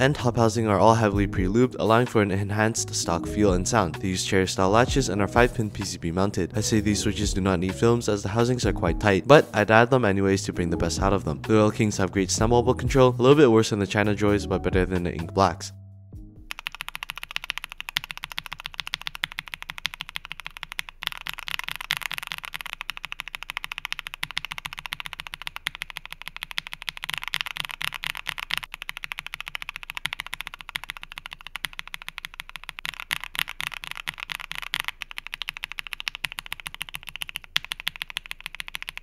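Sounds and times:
mechanical keyboard typing: 16.5s - 39.0s.

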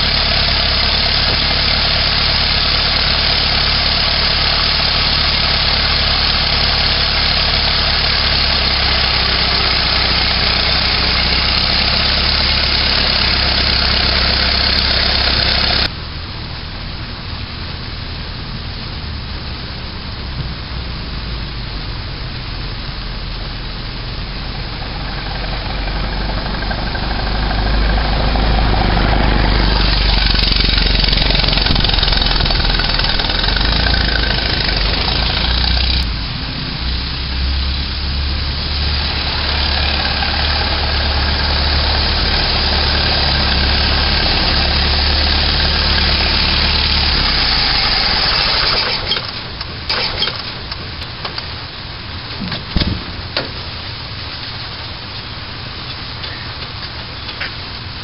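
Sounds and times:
car engine running: 0.0s - 16.0s, 17.8s - 54.2s
thump: 52.4s - 53.6s.

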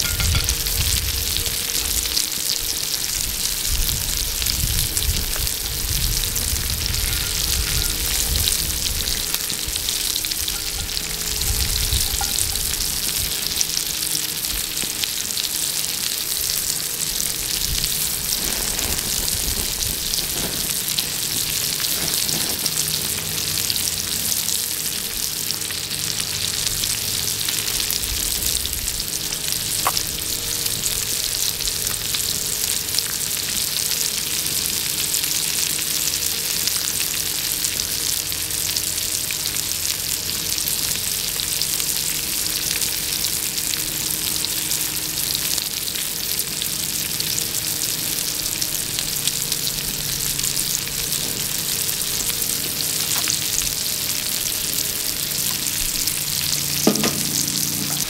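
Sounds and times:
shrimp sizzling in hot oil: 0.0s - 58.0s.

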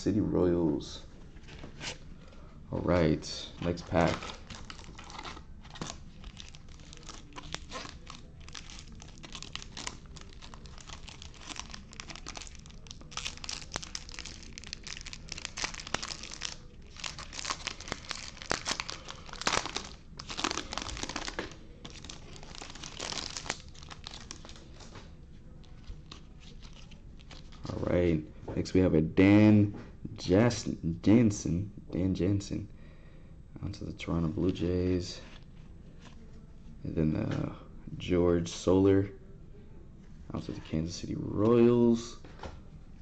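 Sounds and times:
foil wrapper crinkling and tearing: 3.9s - 24.9s.

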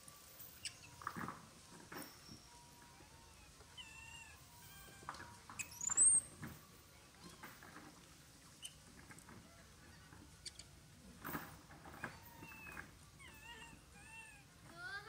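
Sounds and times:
monkey squeaky calls: 0.5s - 1.1s, 2.1s - 6.4s, 8.5s - 8.8s, 9.8s - 10.8s, 12.0s - 14.5s.

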